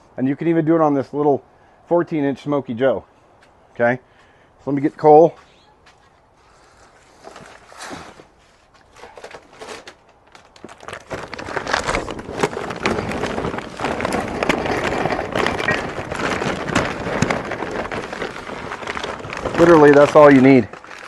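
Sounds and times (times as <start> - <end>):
paper bag rustling: 6.4 - 21.0.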